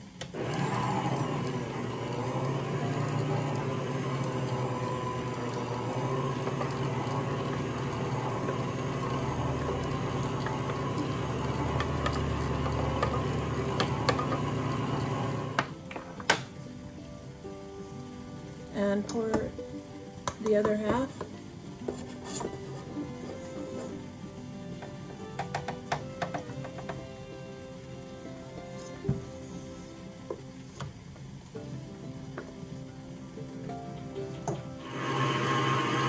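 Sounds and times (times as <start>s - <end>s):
stand mixer running: 0.2s - 15.7s, 34.8s - 36.0s
mixer clicks: 0.2s - 16.5s.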